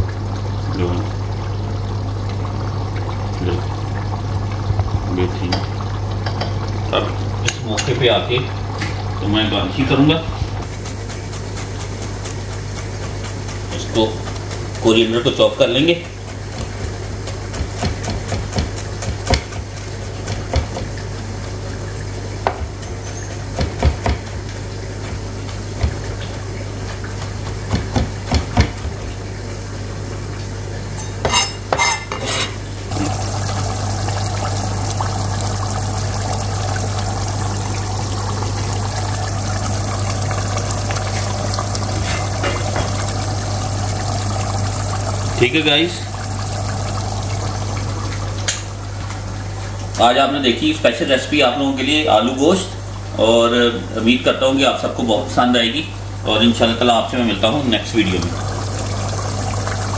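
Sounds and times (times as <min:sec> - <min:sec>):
curry simmering in pot: 0:00.0 - 0:29.6, 0:32.9 - 0:50.0
knife chopping on cutting board: 0:16.2 - 0:20.9, 0:22.4 - 0:24.4, 0:27.2 - 0:29.0
steady low hum: 0:23.6 - 0:59.9.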